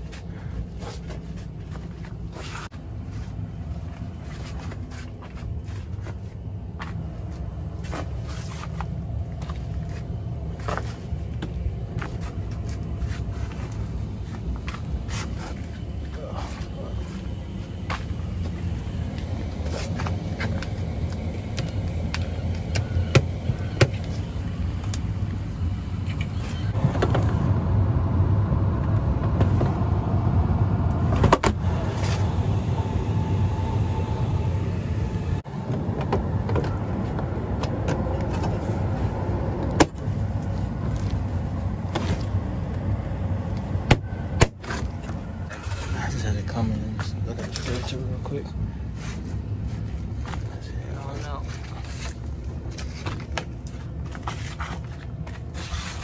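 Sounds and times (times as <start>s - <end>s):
blower motor humming: 8.9s - 46.5s.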